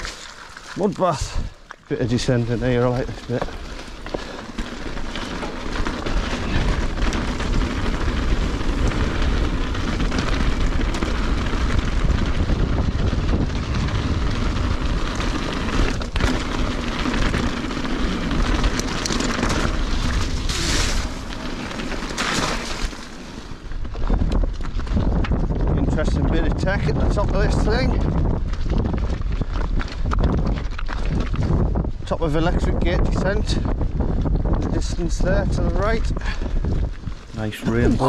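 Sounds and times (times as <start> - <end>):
bike rattling over rocks: 0.0 - 37.8
bike tyre noise: 0.0 - 38.0
wind buffeting microphone: 1.1 - 21.3, 23.6 - 38.0.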